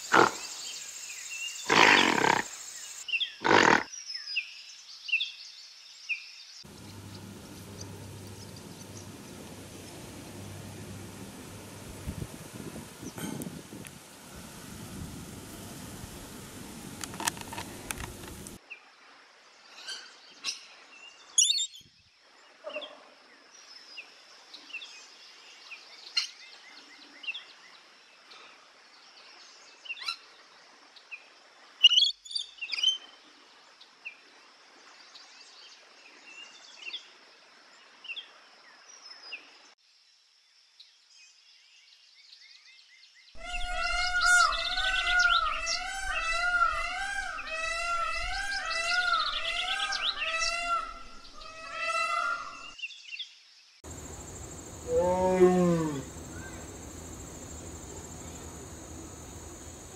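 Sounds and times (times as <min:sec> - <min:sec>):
faint outdoor background: 0:00.0 - 0:59.9
parrot screeching calls: 0:43.4 - 0:52.7.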